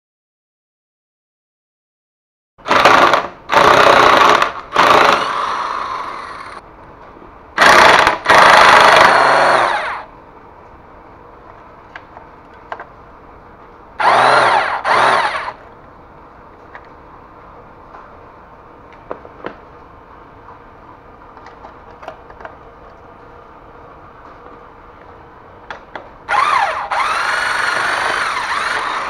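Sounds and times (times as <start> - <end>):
electric power tool driving bolt: 14.0 - 15.6, 26.3 - 29.0.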